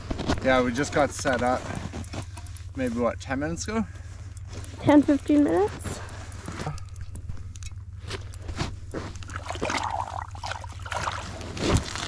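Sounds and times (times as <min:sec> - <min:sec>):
crunching and scraping in snow: 0:00.0 - 0:02.3, 0:11.2 - 0:12.0
steady low rumble: 0:00.0 - 0:12.0.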